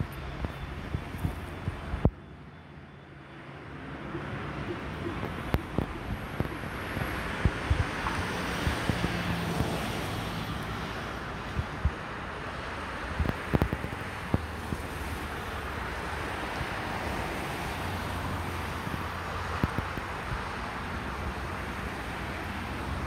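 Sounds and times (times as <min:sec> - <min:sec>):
wind on microphone: 0:04.2 - 0:10.5.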